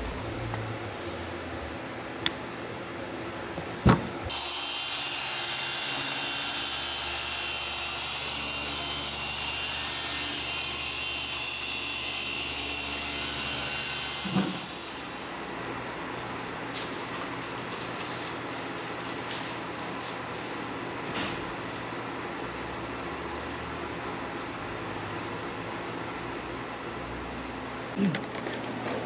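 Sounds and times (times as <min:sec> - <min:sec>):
thump: 0:03.8 - 0:04.1, 0:14.3 - 0:14.6
electric power tool whining: 0:04.3 - 0:09.6.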